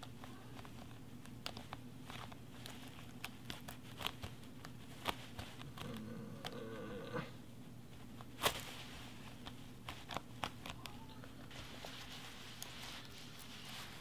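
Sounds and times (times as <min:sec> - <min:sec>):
fabric rustling: 0:11.4 - 0:14.0.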